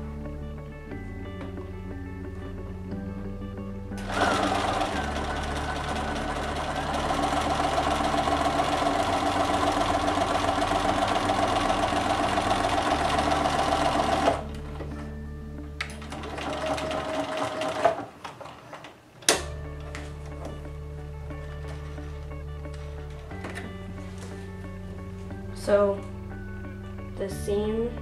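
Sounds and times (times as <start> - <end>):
sewing machine stitching: 4.0 - 14.5, 15.9 - 18.9.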